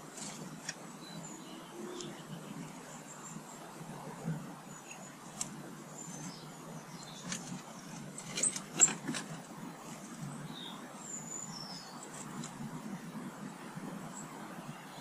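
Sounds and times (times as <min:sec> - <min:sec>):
distant traffic rumble: 0:00.0 - 0:15.0
small birds chirping and whistling: 0:00.9 - 0:03.6, 0:04.6 - 0:08.9, 0:10.2 - 0:12.5.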